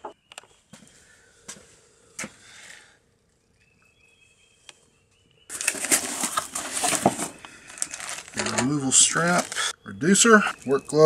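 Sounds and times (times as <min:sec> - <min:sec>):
packing material crinkling: 0:05.5 - 0:09.7.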